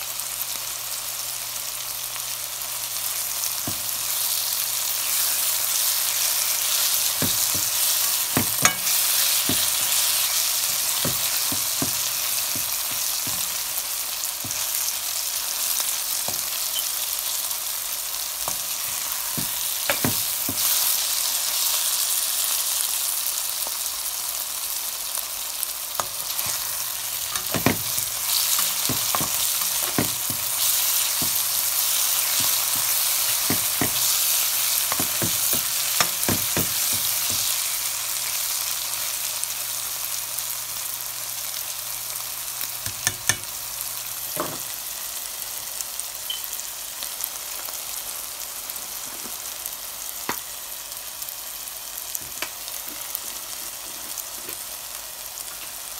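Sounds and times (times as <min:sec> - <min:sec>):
vegetables sizzling in oil: 0:00.0 - 0:55.9
spatula scraping and tapping pan: 0:07.1 - 0:13.7, 0:14.4 - 0:14.8, 0:18.5 - 0:20.8, 0:26.0 - 0:37.6.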